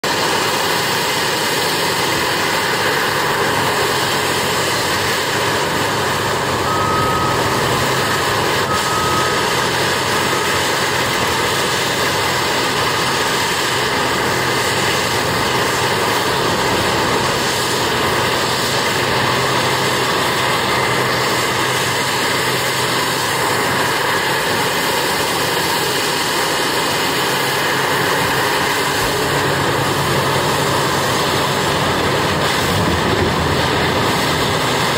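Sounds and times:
diesel engines running: 0:00.0 - 0:34.9
short beeps: 0:06.6 - 0:10.6.

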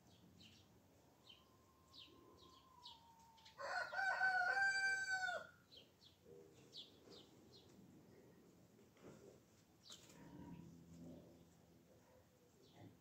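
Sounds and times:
small birds chirping: 0:00.0 - 0:04.2, 0:05.6 - 0:08.4, 0:11.4 - 0:13.0
rooster crowing: 0:02.5 - 0:05.6.

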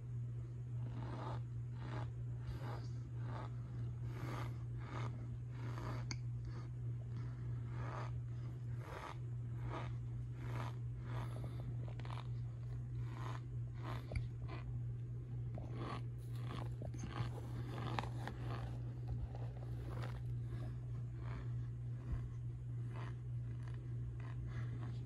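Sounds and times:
steady low hum: 0:00.0 - 0:25.0
cornstarch crunching and squeaking: 0:08.8 - 0:14.7, 0:15.6 - 0:22.2.

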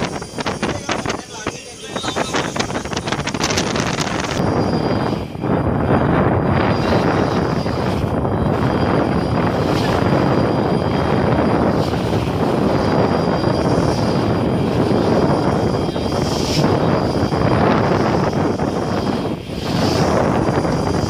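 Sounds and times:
boat engine running: 0:00.0 - 0:21.0
water splashing along hull: 0:00.0 - 0:21.0.

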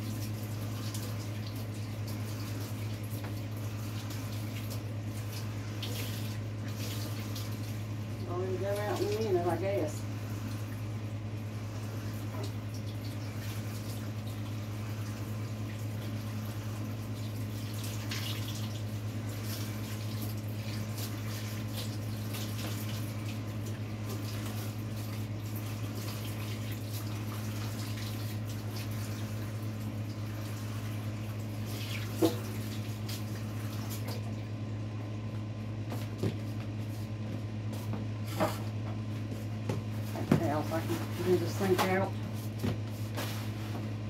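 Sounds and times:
faucet water running into sink: 0:00.0 - 0:10.9, 0:11.7 - 0:34.4
steady low hum: 0:00.0 - 0:44.0
small splashes and knocks: 0:17.0 - 0:34.6.

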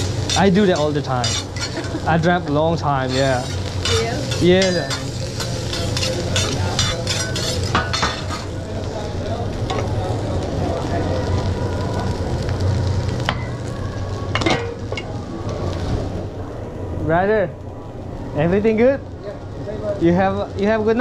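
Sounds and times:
rice sizzling on griddle: 0:00.0 - 0:21.0
metal spatulas scraping and clacking: 0:00.3 - 0:02.0, 0:03.1 - 0:08.5.

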